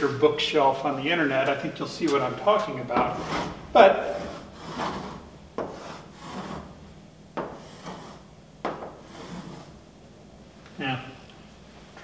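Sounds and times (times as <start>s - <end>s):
chalk scratching on chalkboard: 3.0s - 6.8s, 7.4s - 9.8s.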